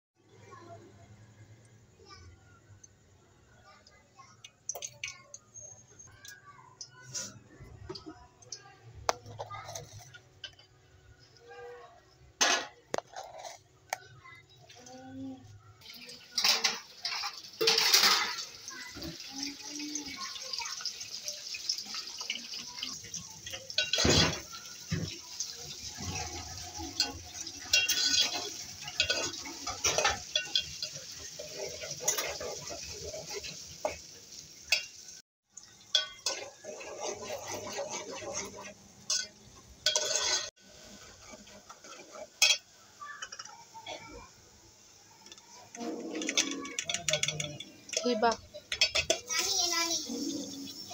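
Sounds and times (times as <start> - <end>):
metal spoon scraping a pot: 9.1 - 10.7, 12.4 - 14.0, 23.0 - 34.0, 35.9 - 42.6, 45.6 - 49.3
onions sizzling in hot oil: 15.8 - 50.9.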